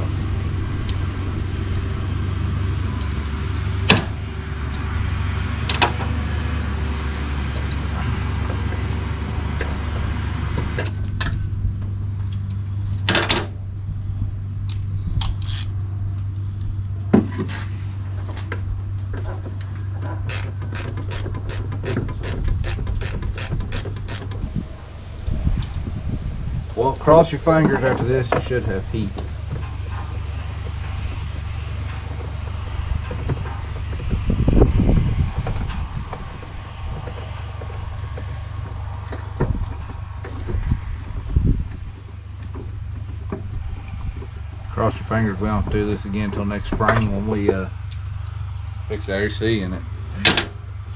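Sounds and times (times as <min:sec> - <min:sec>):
steady low hum: 0:00.0 - 0:50.9
socket ratchet clicking: 0:14.7 - 0:15.7, 0:20.3 - 0:24.4.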